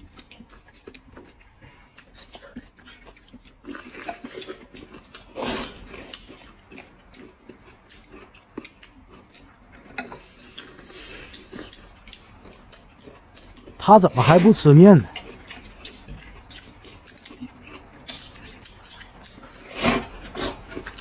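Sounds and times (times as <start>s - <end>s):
chewing: 0.0s - 21.0s
noodles being slurped: 3.6s - 6.3s, 14.2s - 21.0s.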